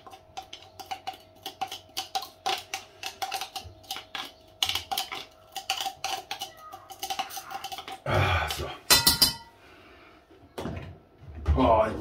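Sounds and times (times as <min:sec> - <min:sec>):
kitchen utensils clattering on dishes: 0:04.6 - 0:09.6.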